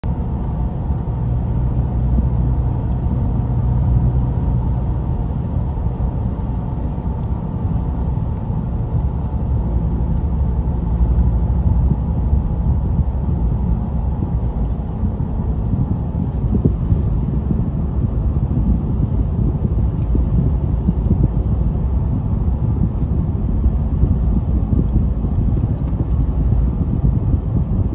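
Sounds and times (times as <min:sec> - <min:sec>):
car cabin road rumble: 0:00.0 - 0:27.9.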